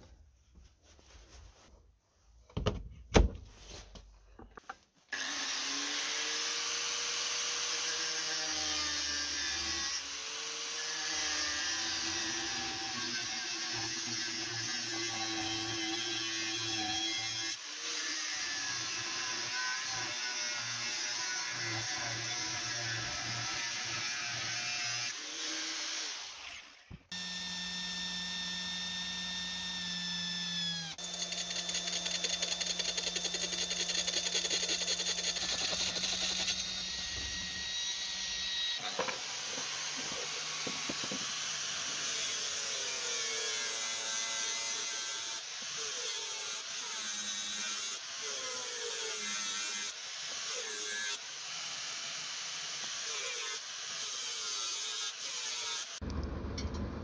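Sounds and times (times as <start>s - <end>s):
angle grinder cutting steel: 5.1s - 56.0s
cordless drill boring steel: 5.1s - 56.1s
angle grinder grinding: 5.2s - 49.9s.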